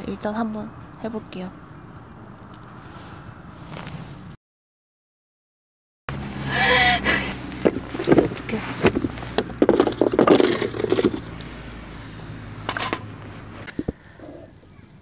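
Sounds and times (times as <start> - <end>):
wood scraping on plastic mat: 7.5 - 11.6.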